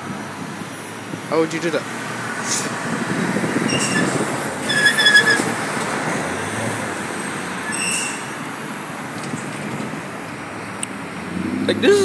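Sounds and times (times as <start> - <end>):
short high-pitched squeal: 3.6 - 5.5, 7.6 - 8.5.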